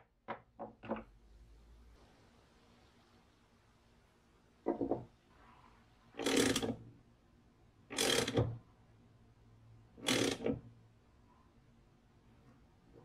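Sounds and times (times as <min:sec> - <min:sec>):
hand ratchet clicking: 0:07.9 - 0:08.4, 0:10.0 - 0:10.5.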